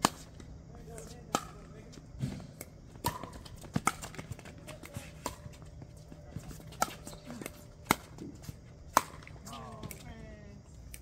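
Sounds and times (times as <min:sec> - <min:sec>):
shoes scuffing on hard court: 0:01.9 - 0:10.1.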